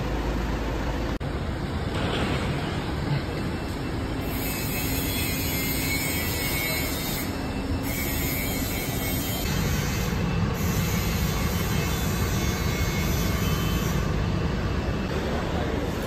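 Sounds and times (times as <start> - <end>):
traffic rumble: 0.0 - 5.6.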